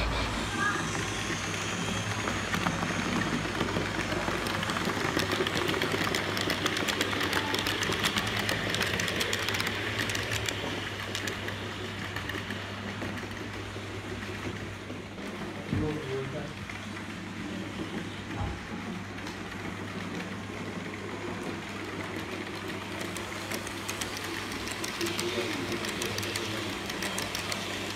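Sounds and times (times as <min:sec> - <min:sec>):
model train electric motor whirring: 0:00.0 - 0:13.3, 0:21.3 - 0:27.9
wheels clicking on rails: 0:00.0 - 0:27.9.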